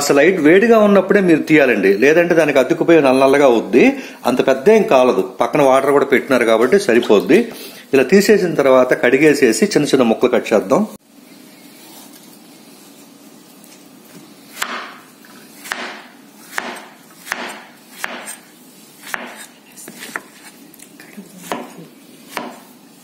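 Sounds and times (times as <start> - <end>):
knife chopping on wooden board: 14.6 - 15.0, 15.6 - 18.4, 19.0 - 20.5, 21.4 - 22.7.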